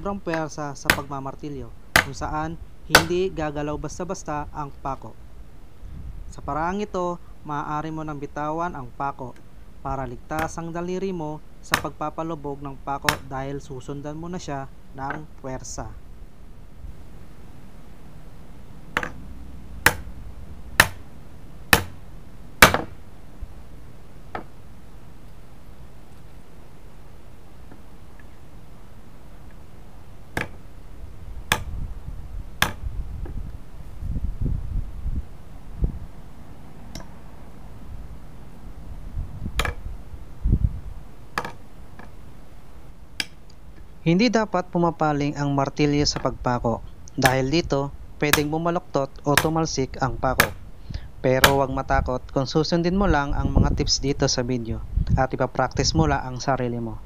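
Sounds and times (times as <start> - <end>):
hammer striking a nail into wood: 0.3 - 1.1, 2.0 - 2.2, 2.9 - 3.2, 10.4 - 10.6, 11.7 - 12.0, 13.1 - 13.3, 19.0 - 19.2, 19.8 - 20.1, 20.8 - 21.0, 21.7 - 22.0, 22.6 - 23.0, 30.4 - 30.6, 31.5 - 31.7, 32.6 - 32.9, 39.6 - 39.8, 47.2 - 47.5, 48.3 - 48.5, 49.3 - 49.6, 50.4 - 50.6, 51.4 - 51.7.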